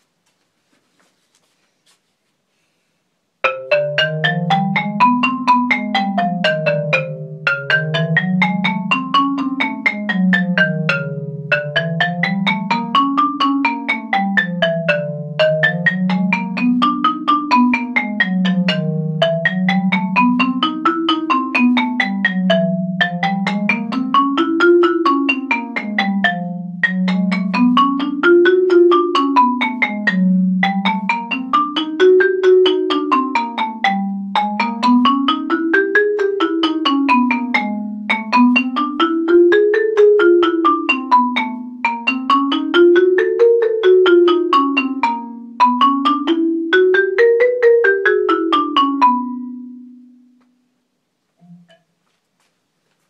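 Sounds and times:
marimba arpeggios: 0:03.4 - 0:50.3.

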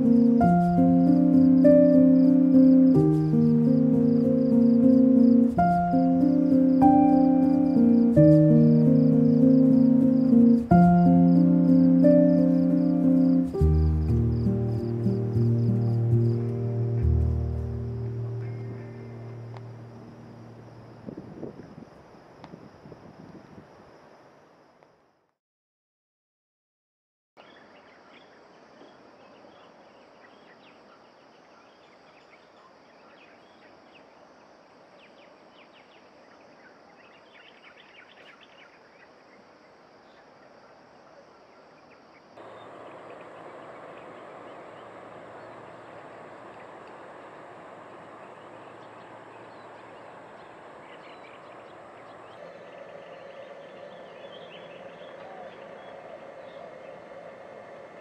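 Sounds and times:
bird chirps: 0:00.0 - 0:20.9, 0:41.5 - 0:58.0
high insect drone: 0:00.0 - 0:24.8, 0:41.8 - 0:58.0
steady tones: 0:42.4 - 0:58.0.

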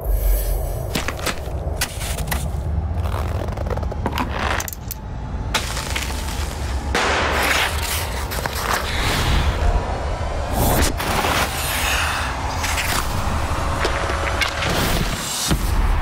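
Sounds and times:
steady low rumble: 0:00.0 - 0:14.6
gritty scrapes: 0:05.6 - 0:09.4.

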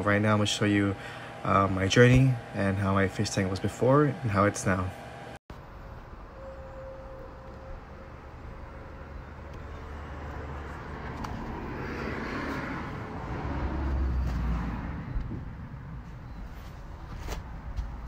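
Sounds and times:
vehicle passing: 0:08.4 - 0:16.2.

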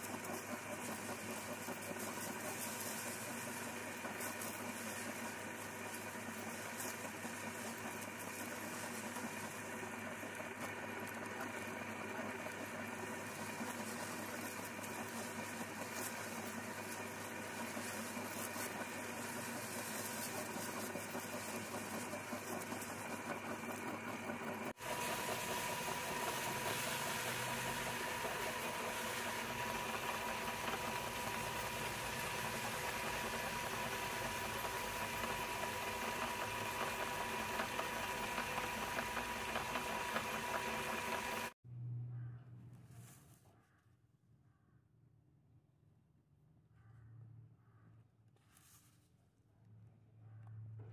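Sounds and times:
electric meat grinder running: 0:00.0 - 0:41.6
low hum: 0:41.6 - 0:43.0.

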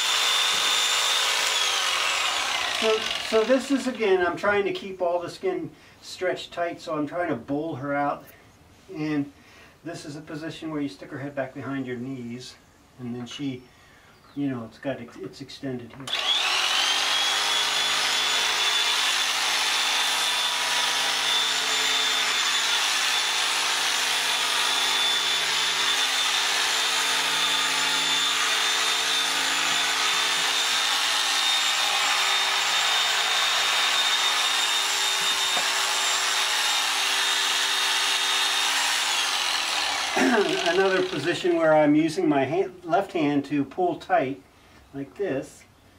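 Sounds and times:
clippers cutting fleece: 0:00.0 - 0:03.8, 0:32.1 - 0:41.4
electric clippers whining: 0:00.0 - 0:03.9, 0:16.1 - 0:41.3.

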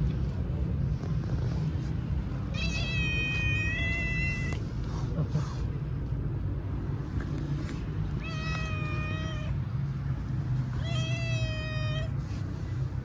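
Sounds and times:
cat meowing: 0:02.5 - 0:04.6, 0:08.2 - 0:09.7, 0:10.7 - 0:12.2.

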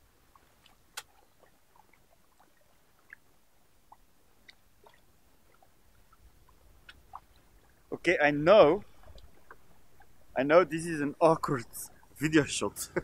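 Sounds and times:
faint ticks: 0:03.9 - 0:07.8.

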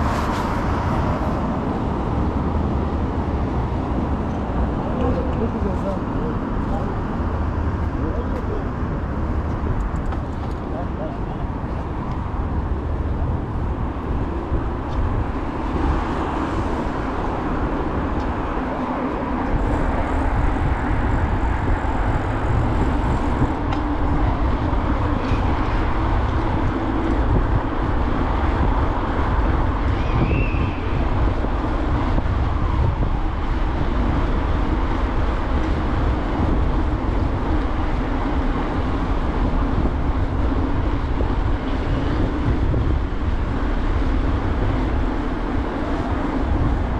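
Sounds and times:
traffic: 0:00.0 - 0:46.9
wind and tyres on asphalt: 0:00.0 - 0:46.9.

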